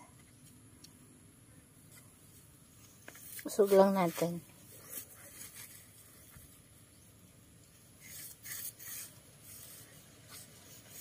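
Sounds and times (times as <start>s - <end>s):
fingers scraping dry soil: 2.8s - 6.7s, 7.7s - 11.0s.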